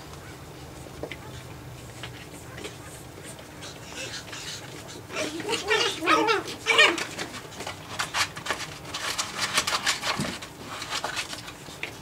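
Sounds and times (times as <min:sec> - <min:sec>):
paws clicking and scuffling: 0:00.0 - 0:12.0
puppies yipping and whining: 0:02.4 - 0:08.1.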